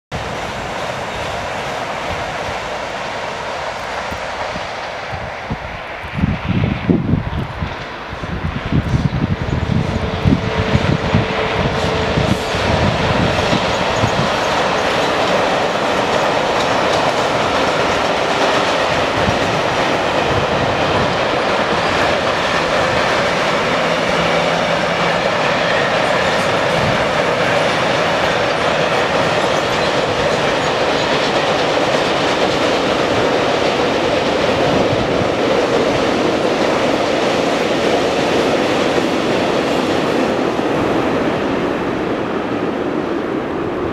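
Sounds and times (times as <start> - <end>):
freight train wagons rolling: 8.7 - 41.2.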